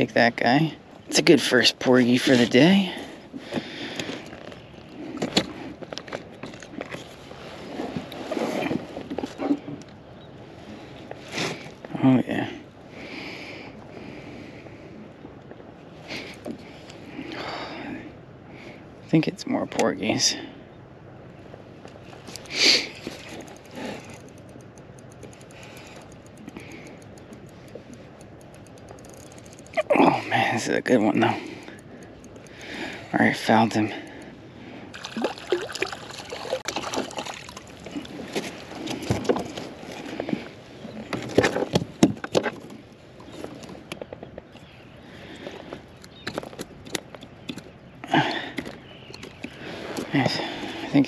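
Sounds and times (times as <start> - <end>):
rustling of fish handling: 2.4 - 11.9, 21.5 - 47.8, 48.4 - 51.0
fishing reel clicking: 22.3 - 29.8, 30.5 - 34.3.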